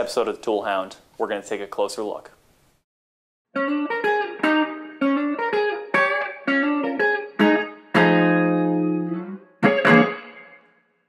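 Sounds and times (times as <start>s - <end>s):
guitar chords: 3.5s - 11.0s.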